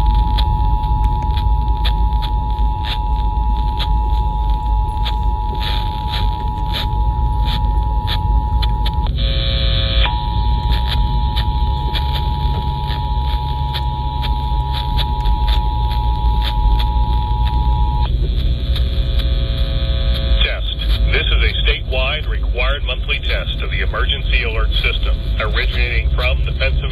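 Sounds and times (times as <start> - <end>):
two-tone alert signal: 0.0 - 18.1
low buzzing tone: 0.0 - 26.9
person speaking: 20.4 - 26.9.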